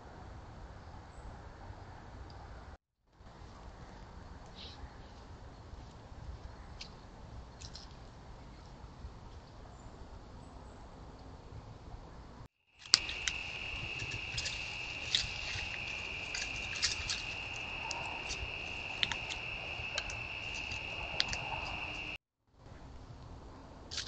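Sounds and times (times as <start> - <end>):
insects trilling: 12.8 - 22.2.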